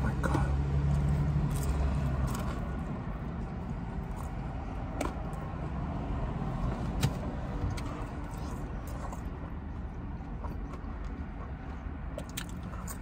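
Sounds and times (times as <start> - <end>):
chewing mouth sounds: 0.1 - 2.9, 7.7 - 13.0.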